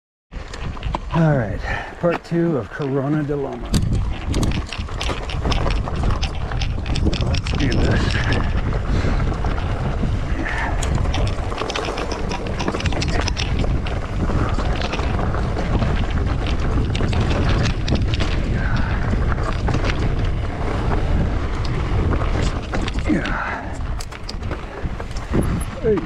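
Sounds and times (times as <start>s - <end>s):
bike clicks and rattles: 0.4s - 26.0s
wind buffeting microphone: 0.4s - 26.0s.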